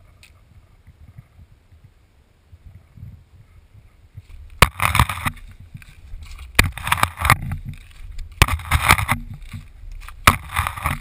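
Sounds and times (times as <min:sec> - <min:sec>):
footsteps on dry leaves: 0:04.2 - 0:11.0
leaves rustling and crunching: 0:04.2 - 0:11.0
hiking pole knocks: 0:04.5 - 0:11.0.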